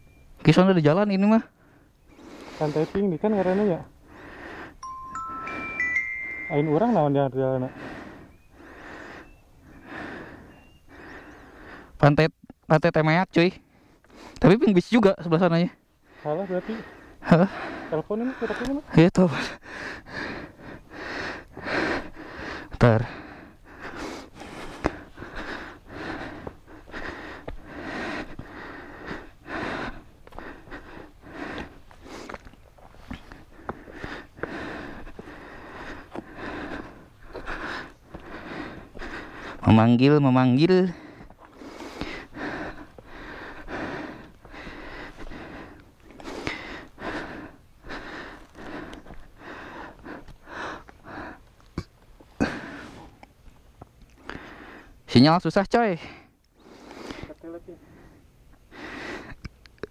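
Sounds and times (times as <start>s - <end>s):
quick heavy breathing: 1.5s - 12.0s, 13.6s - 53.4s, 54.2s - 55.1s, 55.9s - 59.9s
footsteps crunching loose stones: 31.5s - 36.4s, 41.2s - 43.1s, 48.3s - 52.2s.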